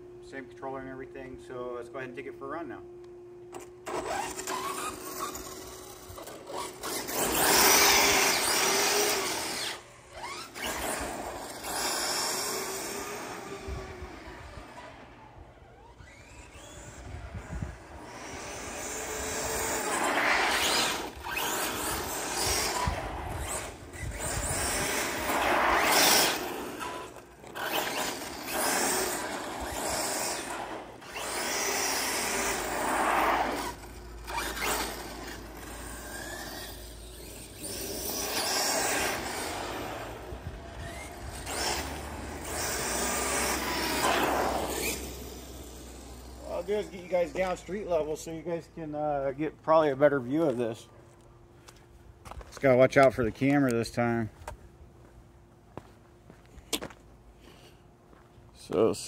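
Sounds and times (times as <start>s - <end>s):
rc car motor rasping: 3.5s - 48.4s.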